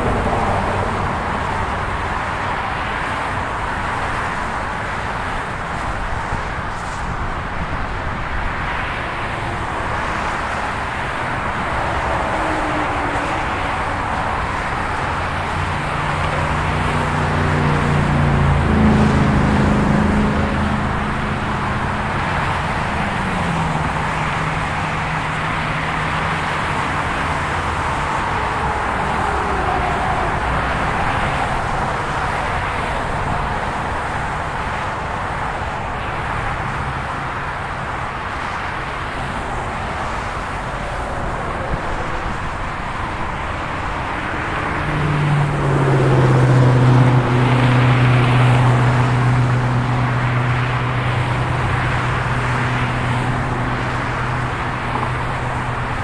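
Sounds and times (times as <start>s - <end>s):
freeway traffic streaming past: 0.0s - 56.0s
vehicle passing with low engine hum: 10.4s - 34.4s, 39.3s - 56.0s.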